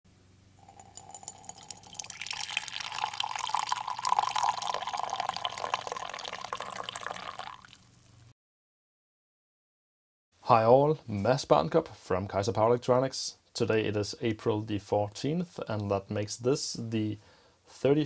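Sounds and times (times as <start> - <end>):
drink pouring into a mug: 0.6 - 8.0.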